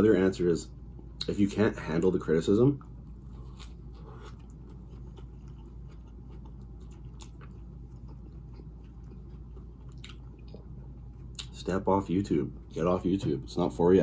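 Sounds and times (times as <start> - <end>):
steady low hum: 0.0 - 14.0
slow chewing: 2.8 - 11.6.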